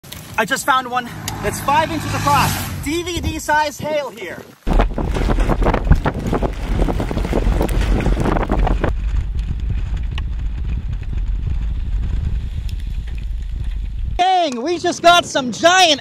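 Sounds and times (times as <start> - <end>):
rain and hail pattering: 0.0 - 1.0, 3.4 - 14.2
wind buffeting microphone: 1.1 - 16.0.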